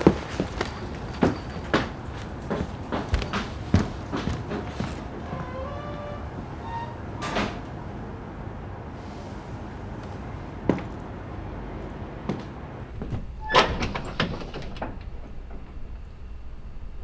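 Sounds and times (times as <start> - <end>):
low room hum: 9.7 - 17.0
closet door clicking: 12.9 - 16.0
door rattling clacks: 12.9 - 17.0.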